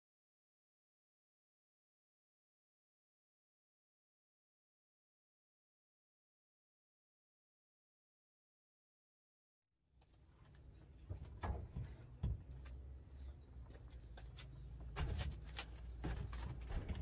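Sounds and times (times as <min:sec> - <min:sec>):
shoes knocking on metal floor: 0:11.0 - 0:12.9.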